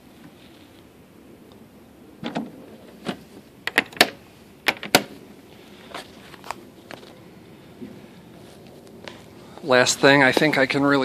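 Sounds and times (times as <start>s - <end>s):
latches clicking and snapping: 2.2s - 5.1s.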